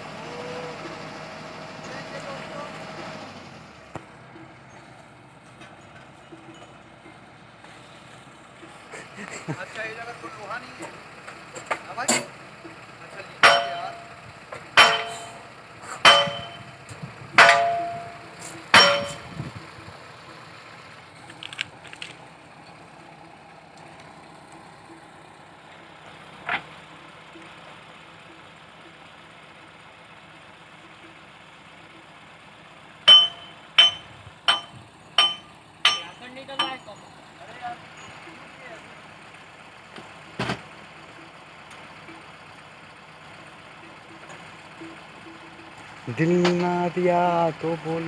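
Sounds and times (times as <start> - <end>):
faint engine hum: 0.0 - 48.0
ringing metal clangs: 4.3 - 7.3, 13.2 - 19.6, 33.1 - 38.6.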